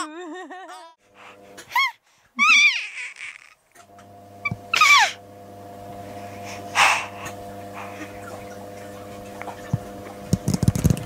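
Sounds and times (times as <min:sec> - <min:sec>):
baby squealing: 0:01.7 - 0:03.6, 0:04.7 - 0:05.2
steady low hum: 0:03.6 - 0:11.0.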